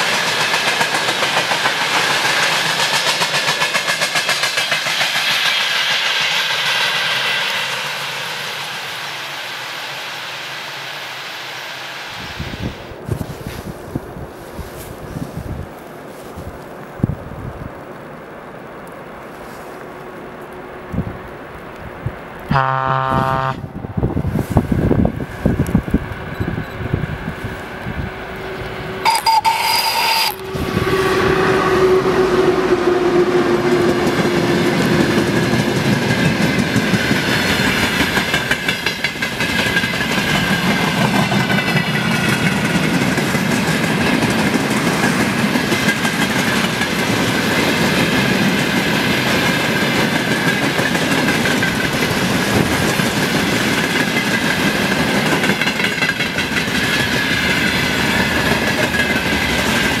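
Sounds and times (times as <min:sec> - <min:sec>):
train wagons clattering over rails: 0:00.0 - 0:08.8, 0:24.2 - 0:31.0, 0:33.5 - 1:00.0.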